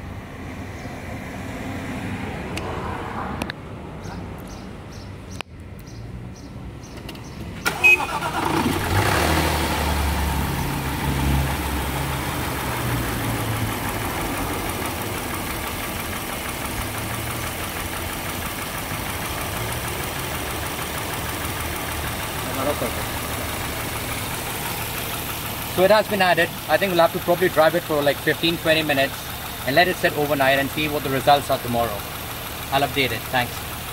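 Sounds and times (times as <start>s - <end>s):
car engine starting and idling: 5.6s - 33.9s
engine ticking: 6.8s - 33.9s.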